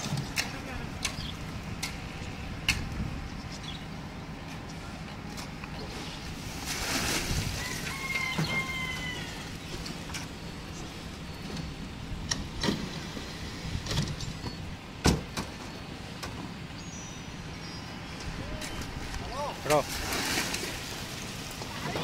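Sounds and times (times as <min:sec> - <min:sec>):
low machine hum: 0:00.0 - 0:22.0
wet concrete sloshing: 0:06.4 - 0:08.0, 0:19.6 - 0:22.0.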